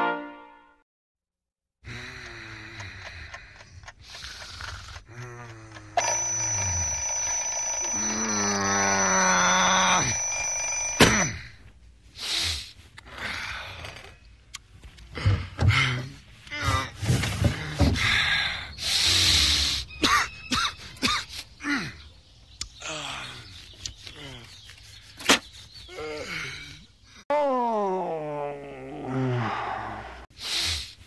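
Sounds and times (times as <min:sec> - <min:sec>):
electronic alarm ringing: 0:06.0 - 0:11.6
person's drawn-out voice: 0:27.3 - 0:30.2.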